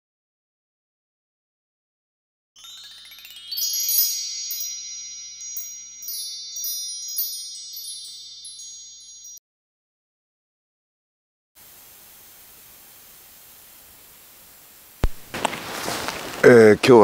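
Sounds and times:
bell-like chimes: 2.6 - 9.4.

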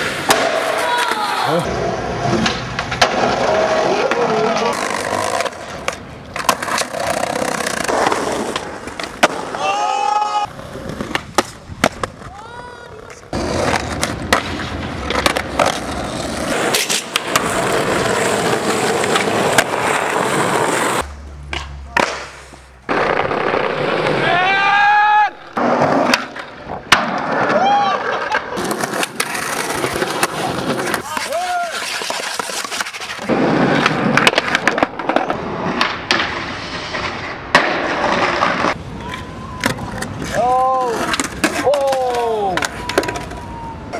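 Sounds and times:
skateboard popping and landing: 0.0 - 24.4, 25.4 - 43.5
skateboard grinding on concrete: 0.0 - 24.6, 25.4 - 43.4
skateboard wheels rolling: 0.0 - 43.9
skateboard deck clacks: 37.5 - 43.5.

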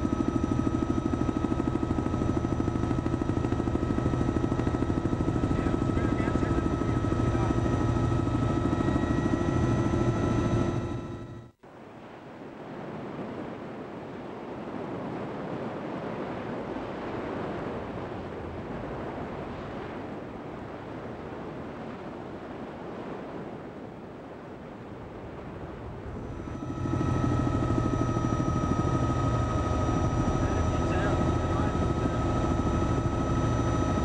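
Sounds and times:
aircraft engine drone: 0.0 - 11.5, 25.4 - 34.0.

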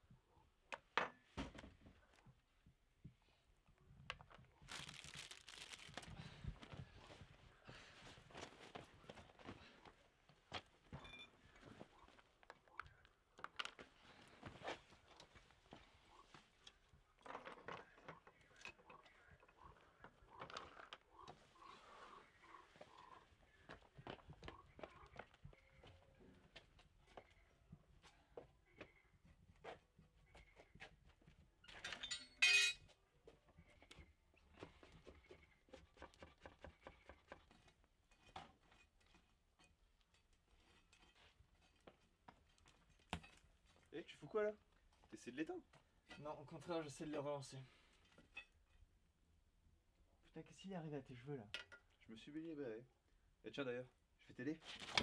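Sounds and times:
sharp ringing clink: 32.1 - 32.8.

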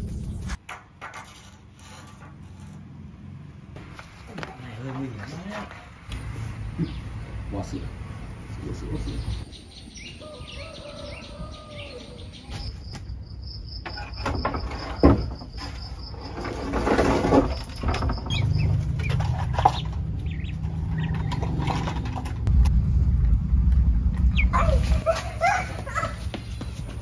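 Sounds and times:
low steady hum: 17.9 - 26.0.

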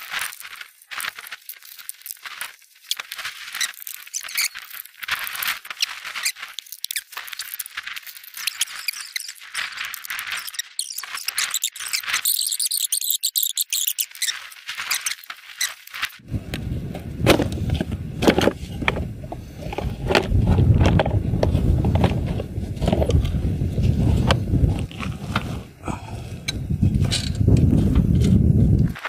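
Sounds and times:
high-pitched squeaking: 8.4 - 15.9
steady low rumble: 16.2 - 28.9.

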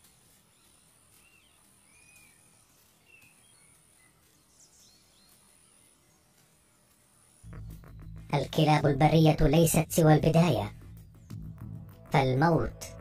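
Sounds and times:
faint bird chirps: 0.0 - 8.4.

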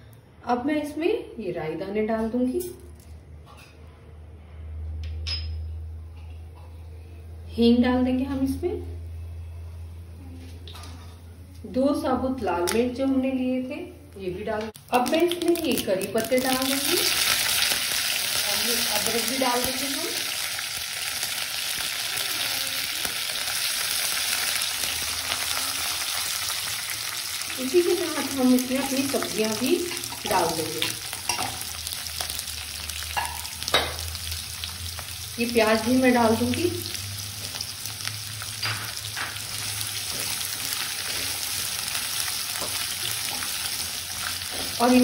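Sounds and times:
spices sizzling in hot oil: 14.8 - 45.0.

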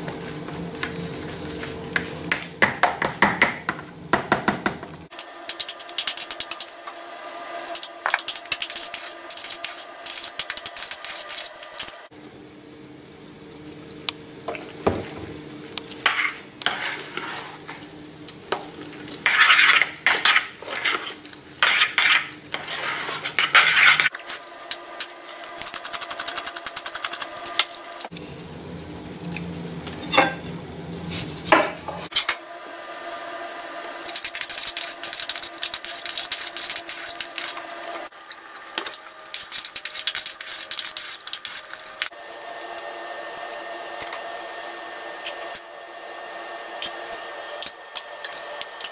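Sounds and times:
metal spoon scraping saucepan: 16.1 - 17.8, 19.2 - 24.1, 29.9 - 30.6.

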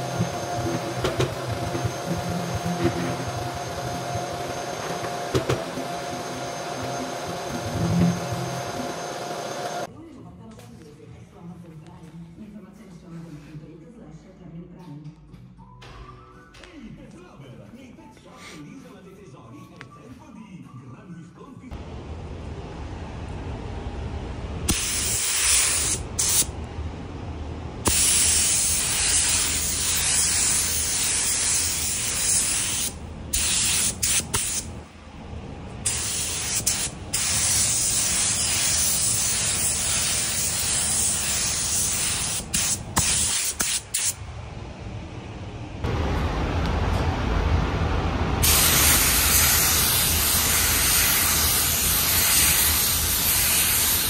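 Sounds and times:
paint spray gun hissing: 24.7 - 26.5, 27.9 - 34.7, 35.9 - 44.2, 48.4 - 54.0
steady low rumble: 44.2 - 49.2.

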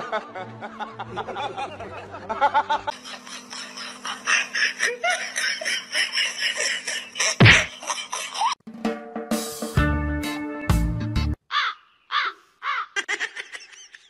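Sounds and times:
person laughing: 0.0 - 8.6, 12.6 - 14.0.

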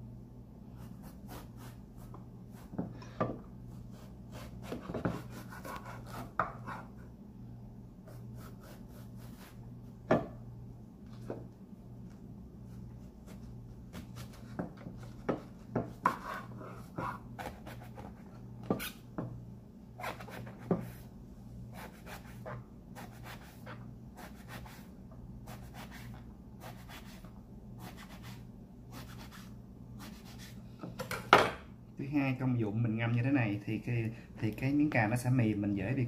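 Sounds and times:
steady low hum: 0.0 - 36.0
knife cutting on a cutting board: 0.8 - 2.9, 3.7 - 7.0, 8.1 - 9.6, 13.2 - 19.0, 20.0 - 21.0, 21.7 - 24.9, 25.5 - 30.6.

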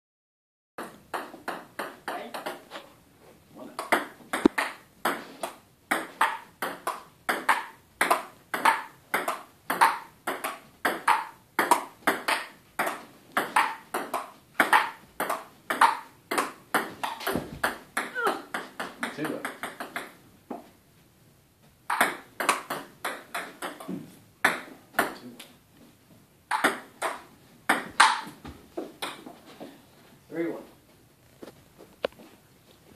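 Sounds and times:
table tennis ball hitting paddles: 0.8 - 2.9, 3.7 - 20.7, 21.9 - 25.3, 26.5 - 29.4.

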